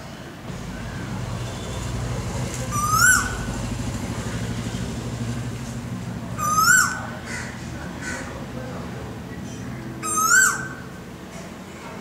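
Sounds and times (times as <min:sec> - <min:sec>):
steady low hum: 0:00.4 - 0:10.1
koel calling: 0:02.7 - 0:03.5, 0:06.4 - 0:08.3, 0:10.0 - 0:11.0.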